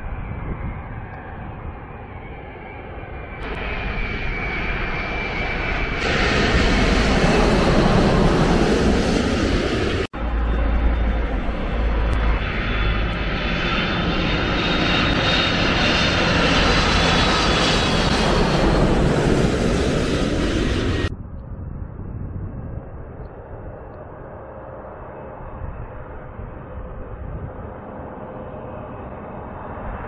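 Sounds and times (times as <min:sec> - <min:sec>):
jet airliners passing overhead: 0:00.0 - 0:30.0
high jet whine: 0:03.3 - 0:21.1.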